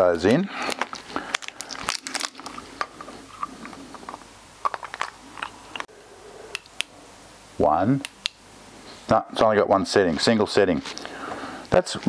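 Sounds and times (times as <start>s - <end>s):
batteries clicking and scraping: 0.6s - 5.9s.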